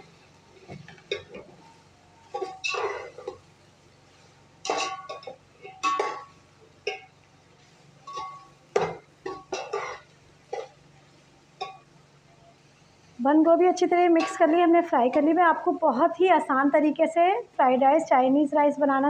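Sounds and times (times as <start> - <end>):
low steady hum: 0.0 - 19.0
metal spatula scraping a pot: 1.1 - 3.5.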